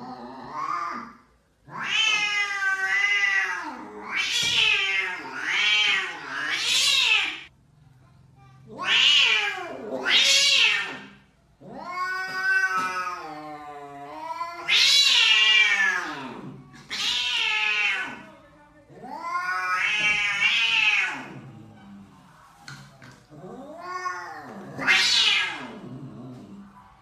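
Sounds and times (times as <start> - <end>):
angry cat yowling: 1.7 - 7.5, 8.7 - 18.2, 23.4 - 25.9.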